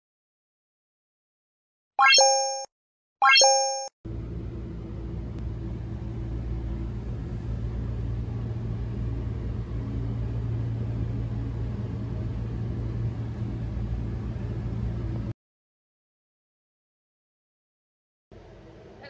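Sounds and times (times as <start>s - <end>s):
low rumbling hum: 4.1s - 15.3s.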